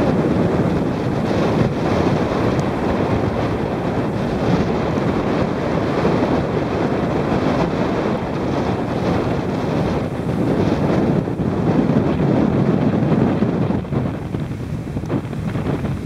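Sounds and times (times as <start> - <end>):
storm wind buffeting microphone: 0.0 - 16.0.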